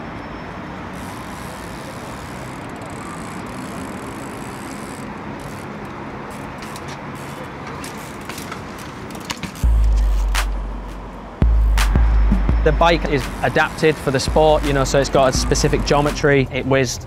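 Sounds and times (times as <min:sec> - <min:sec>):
city traffic: 0:00.0 - 0:17.0
low rumble: 0:09.7 - 0:13.4, 0:14.3 - 0:16.1.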